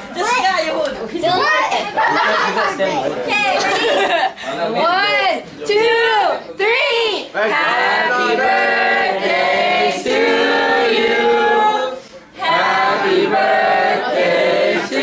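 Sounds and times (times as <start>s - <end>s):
group singing unaccompanied: 7.4s - 15.0s.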